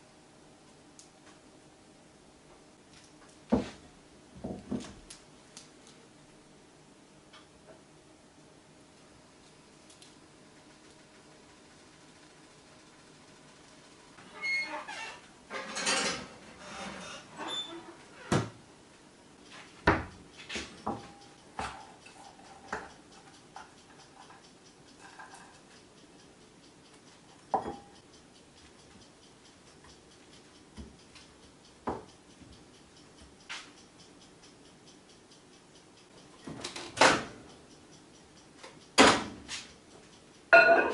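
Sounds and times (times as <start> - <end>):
dishware handling noise: 40.5 - 40.9
clinks and knocks of dishware: 40.6 - 40.9.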